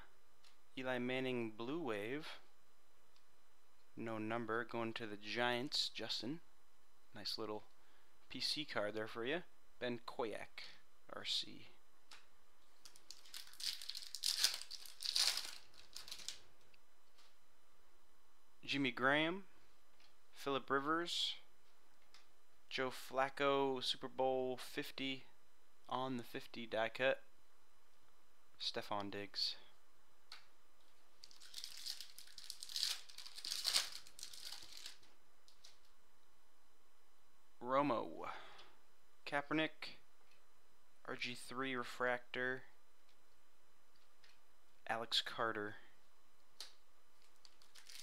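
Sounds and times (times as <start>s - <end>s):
foil wrapper crinkling: 12.8s - 16.5s, 31.2s - 35.8s, 47.2s - 48.0s.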